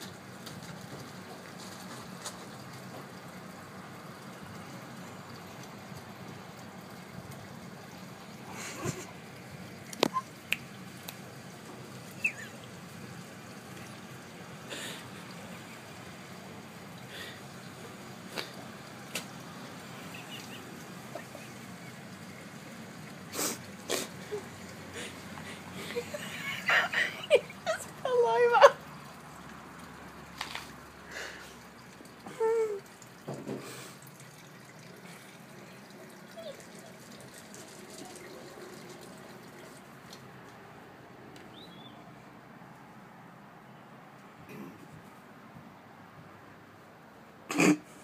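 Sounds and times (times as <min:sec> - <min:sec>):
light ticks: 0:09.9 - 0:11.2.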